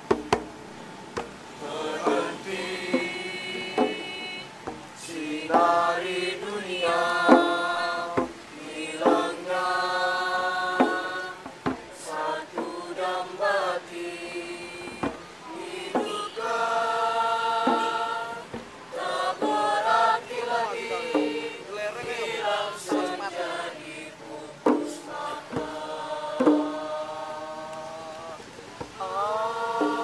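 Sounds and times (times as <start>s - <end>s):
sharp knocks: 0.1s - 0.6s
young people singing in chorus: 1.2s - 30.0s.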